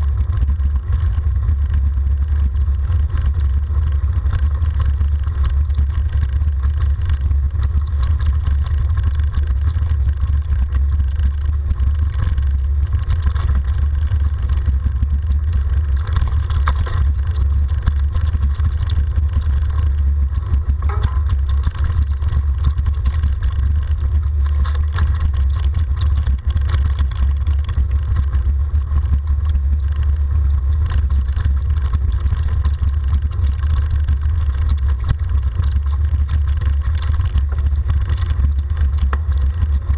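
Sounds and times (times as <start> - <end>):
wind and tyre rumble: 0.0 - 39.9.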